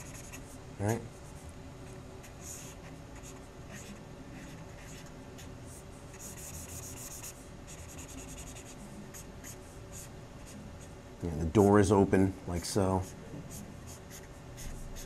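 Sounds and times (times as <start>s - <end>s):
felt-tip marker scratching on paper: 0.0s - 0.6s, 2.3s - 5.1s, 6.1s - 10.9s, 13.0s - 15.0s.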